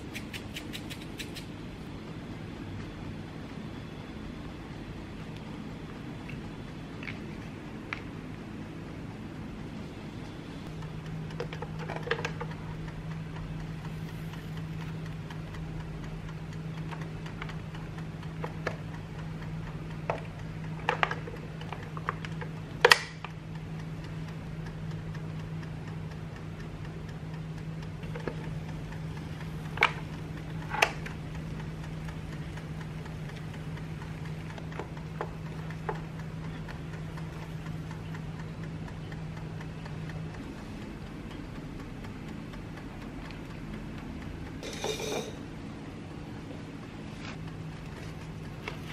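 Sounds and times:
sharp clicks: 0.0 - 1.6
sandwich maker low hum: 0.0 - 48.9
dial timer ticking: 10.6 - 48.9.

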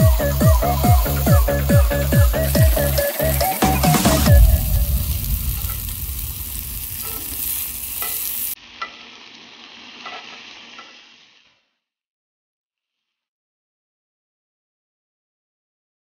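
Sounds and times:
chicken sizzling in a grill pan: 0.0 - 11.8.

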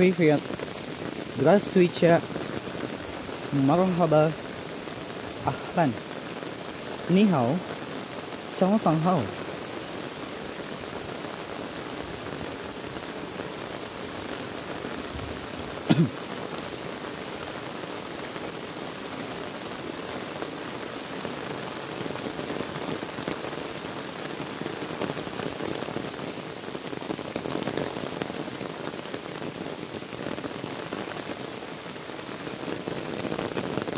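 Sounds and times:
heavy rain pouring on water: 0.0 - 33.9.

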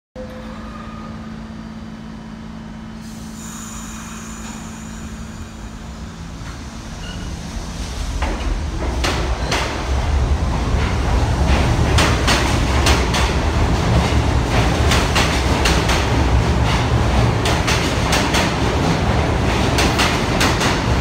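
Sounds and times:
subway train rumble: 0.2 - 21.0
train hum: 0.2 - 21.0.

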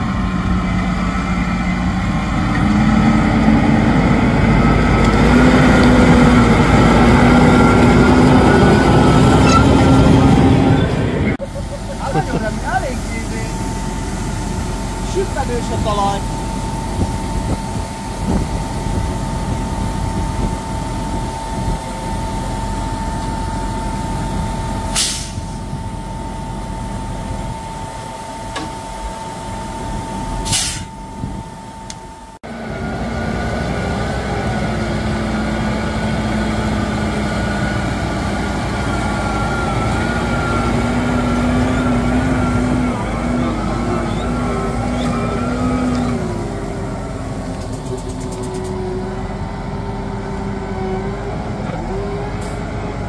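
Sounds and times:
tractor engine whining: 0.0 - 53.0
air hissing: 24.9 - 25.7, 30.4 - 31.0.

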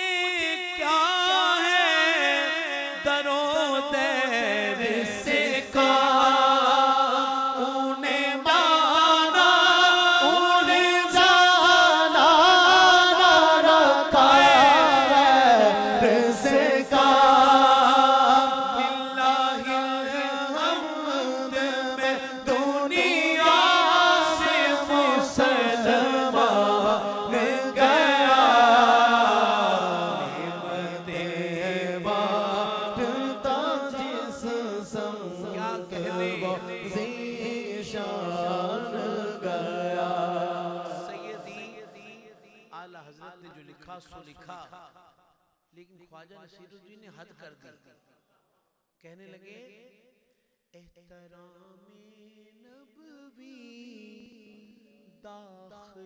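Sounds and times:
men chanting through pa system: 0.9 - 42.4.

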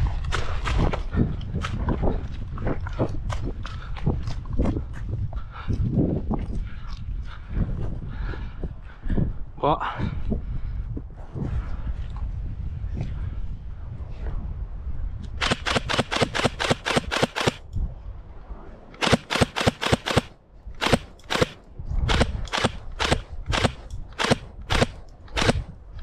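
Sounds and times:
airsoft gun shots: 15.4 - 17.6, 19.0 - 25.7.

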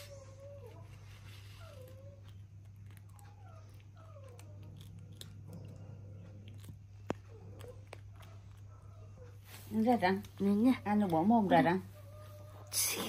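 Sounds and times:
steady low hum: 0.0 - 13.0
chewing clicks: 2.3 - 8.7.

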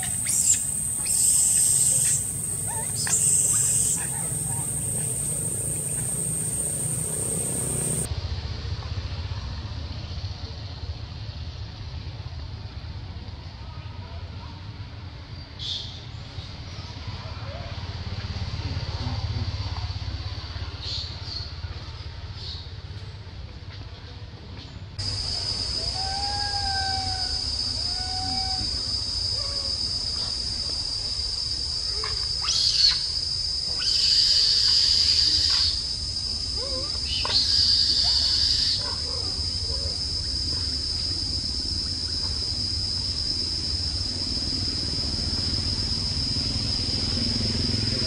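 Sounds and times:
insect chorus buzzing: 0.0 - 8.1, 25.0 - 48.0
short squeaky calls: 0.0 - 8.1, 32.0 - 33.1.

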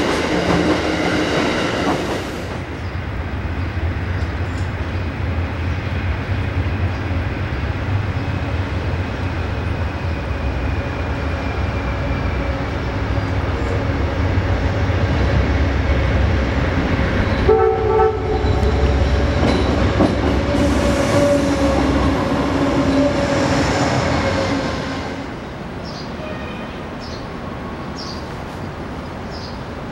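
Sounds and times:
diesel locomotive passing: 0.0 - 29.9
rail and wheel noise: 0.0 - 29.9
train horn blast: 17.4 - 19.3, 20.4 - 25.2.

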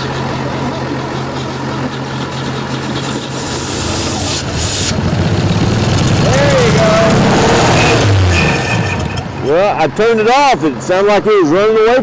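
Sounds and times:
car engine running: 0.0 - 11.3
rushing hiss: 3.0 - 5.1.

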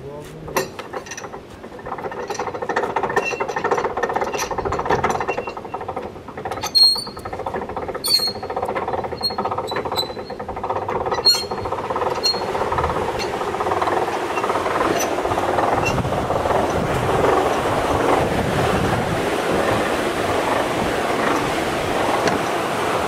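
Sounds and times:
winch gears clicking: 0.4 - 23.0
metallic clanks: 0.5 - 18.3
short high squeaks: 6.6 - 13.4.

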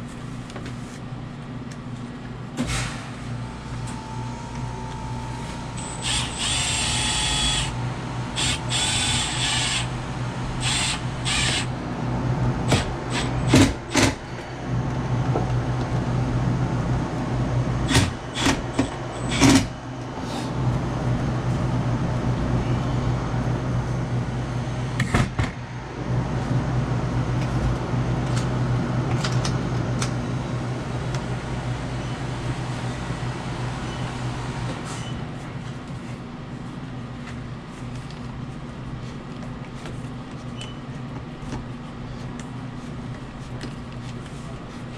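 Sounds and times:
low machine hum: 0.0 - 44.9
rasping whirring bursts: 5.8 - 11.8, 12.7 - 14.0.

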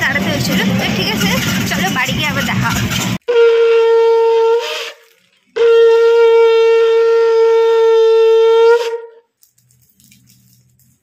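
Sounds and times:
conch shell blast: 5.6 - 9.2.

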